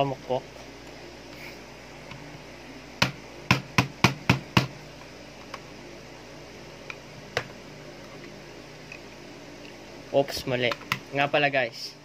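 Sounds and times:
hammer knocking on screwdriver: 3.0 - 4.7.

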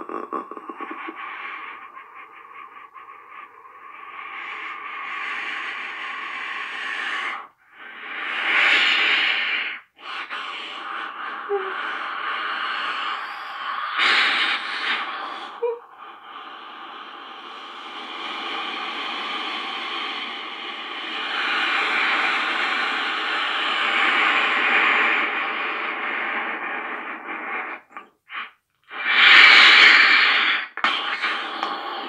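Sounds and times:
person stifled wheezing laughter: 0.0 - 1.3.

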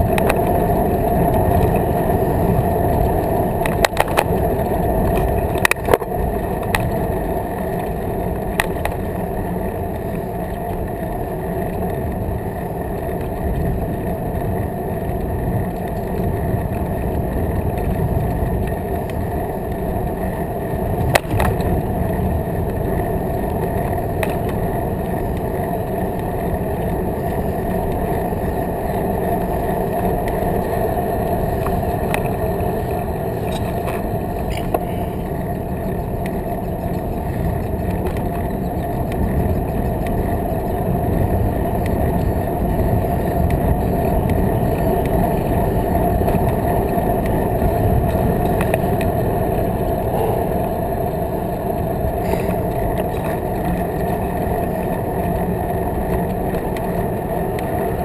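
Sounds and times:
bicycle tyre and wind rumble: 0.0 - 58.0
small tick: 0.1 - 0.6, 3.6 - 4.4, 48.1 - 49.1.

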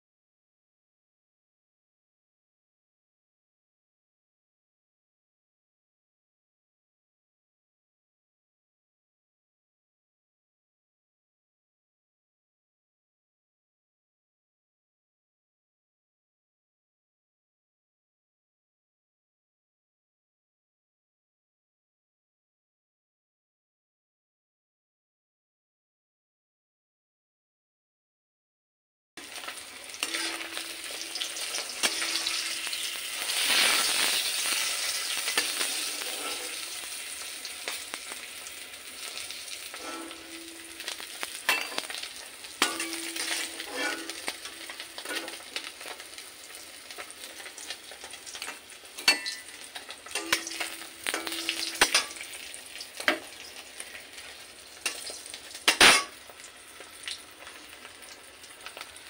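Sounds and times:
fish sizzling in hot oil: 29.2 - 59.0
metal spatula knocking pan: 30.0 - 32.7, 42.6 - 45.4, 49.0 - 52.3.

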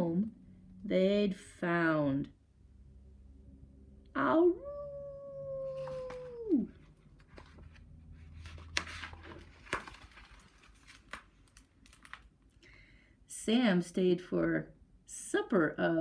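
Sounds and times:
woman imitating dog howl: 4.2 - 6.8
book pages turning: 5.7 - 12.4.

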